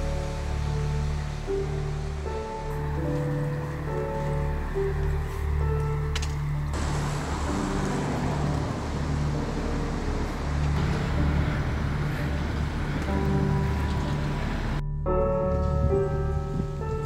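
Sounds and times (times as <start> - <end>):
cars passing on road: 0.0 - 17.0
low droning music: 0.0 - 17.0.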